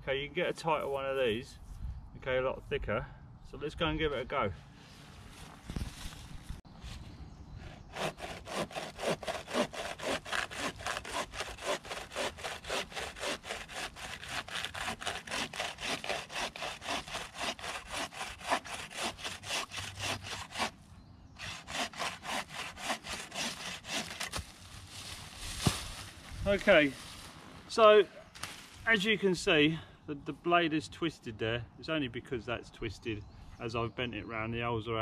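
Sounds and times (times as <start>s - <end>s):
bow saw cutting wood: 7.7s - 20.8s, 21.4s - 24.6s.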